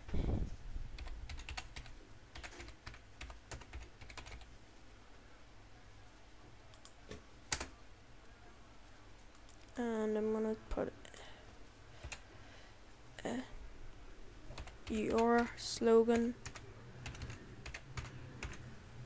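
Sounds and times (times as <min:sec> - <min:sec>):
typing on computer keyboard: 0:01.0 - 0:04.5, 0:14.5 - 0:15.5, 0:16.1 - 0:18.6.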